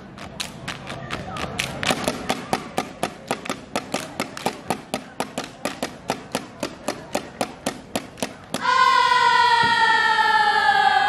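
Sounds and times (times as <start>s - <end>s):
rapid hand clapping and body slapping: 0.0s - 8.6s.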